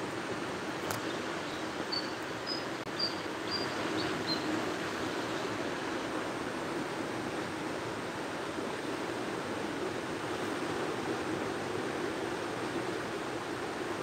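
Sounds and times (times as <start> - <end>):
small waves washing on beach: 0.0 - 14.0
bird chirping: 1.5 - 4.5.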